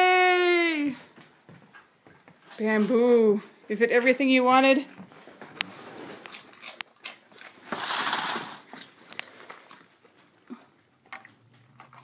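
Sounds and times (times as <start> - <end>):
dog crunching and chewing: 5.0 - 12.0
rustle: 7.4 - 9.6.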